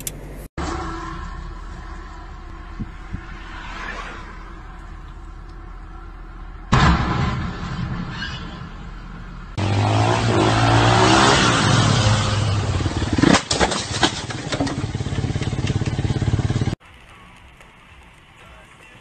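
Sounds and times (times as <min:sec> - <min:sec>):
crash impacts: 0:06.7 - 0:15.0.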